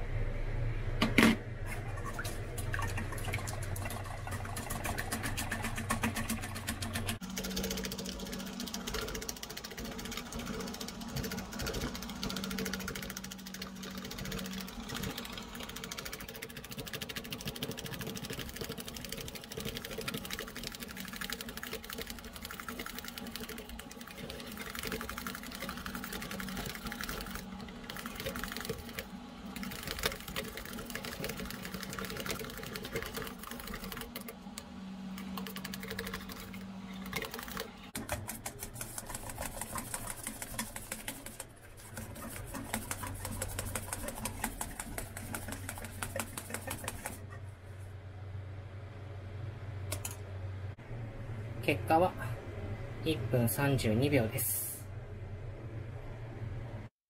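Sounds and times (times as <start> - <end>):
whisking against steel bowl: 3.4 - 34.3, 35.4 - 47.4.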